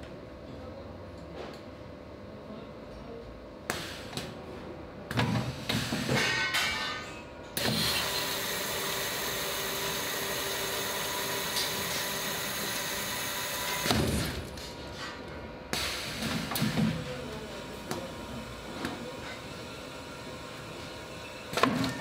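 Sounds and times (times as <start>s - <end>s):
machine and handling noise: 3.8s - 20.0s, 20.6s - 22.0s
machine thump: 13.8s - 14.4s.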